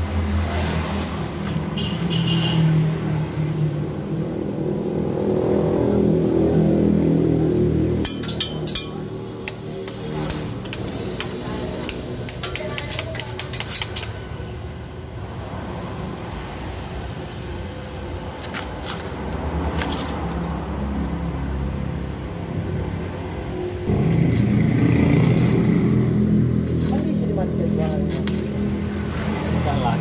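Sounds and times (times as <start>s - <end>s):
sharp metal taps: 8.0s - 14.2s.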